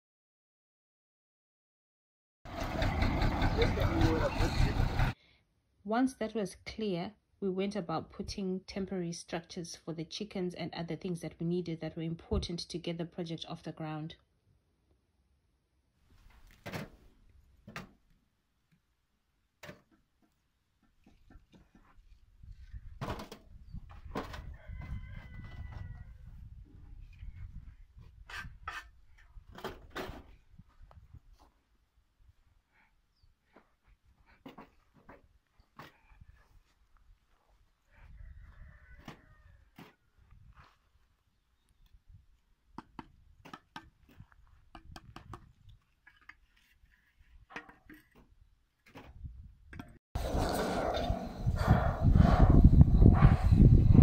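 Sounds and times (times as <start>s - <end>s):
rooster crowing: 24.4s - 26.3s, 37.9s - 39.7s.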